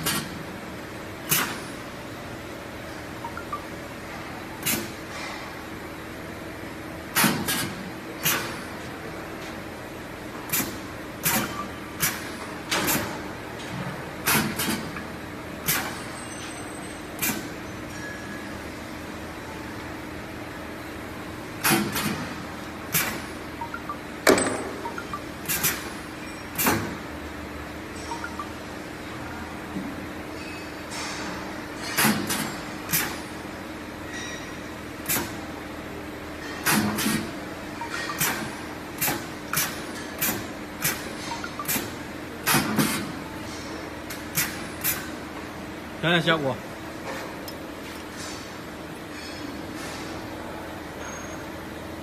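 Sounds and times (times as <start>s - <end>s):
air cylinders hissing and clacking: 0.0s - 0.4s, 1.2s - 1.9s, 4.6s - 5.5s, 7.1s - 8.8s, 10.4s - 18.1s, 21.6s - 23.3s, 24.9s - 27.0s, 30.4s - 33.3s, 34.1s - 35.5s, 36.4s - 45.2s
steady machine hum: 0.0s - 49.5s
air bursts and cylinder clacks: 37.8s - 43.1s.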